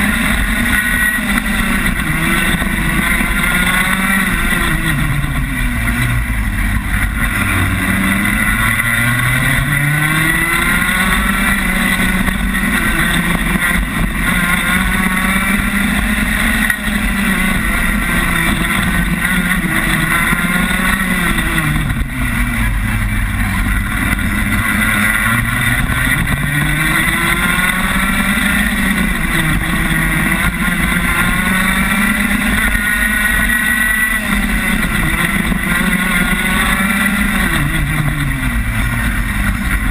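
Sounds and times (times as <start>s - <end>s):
kart engine revving: 0.0s - 39.9s.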